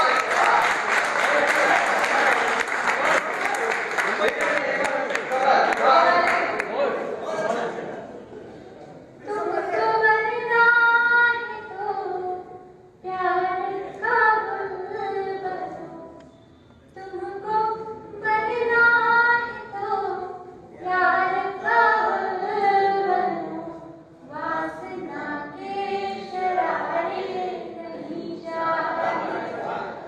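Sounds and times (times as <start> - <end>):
woman singing unaccompanied: 9.3 - 16.2, 17.0 - 29.4.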